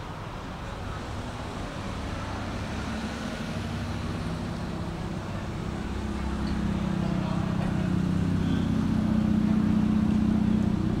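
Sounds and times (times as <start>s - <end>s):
low engine hum: 0.0s - 11.0s
outdoor rumble: 0.0s - 11.0s.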